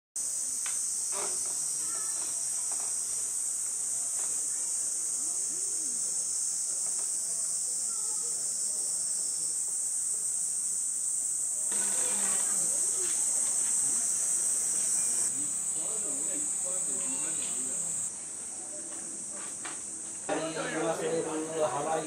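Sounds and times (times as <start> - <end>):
insects droning: 0.2 - 22.0.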